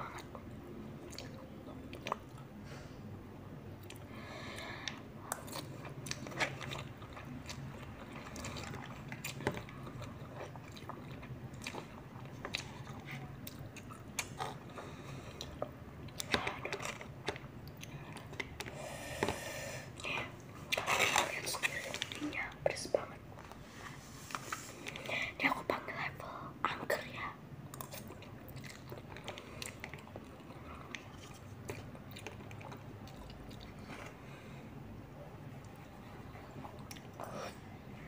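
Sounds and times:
wet chewing and slurping: 5.3 - 22.2, 27.7 - 34.4.

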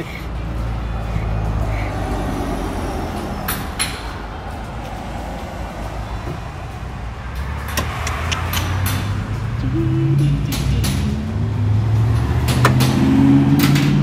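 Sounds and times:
car driving by: 0.4 - 14.0
sharp clicks: 7.4 - 9.1.

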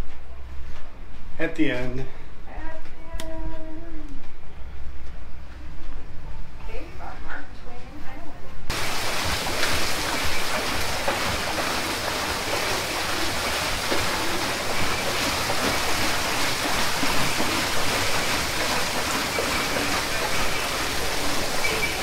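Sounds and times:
water splashing off water wheel: 8.7 - 22.0.

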